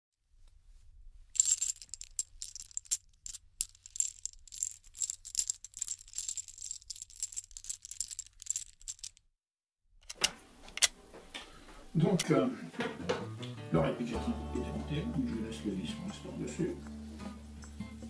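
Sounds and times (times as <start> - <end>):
dry high-pitched rattling: 1.4 - 9.2.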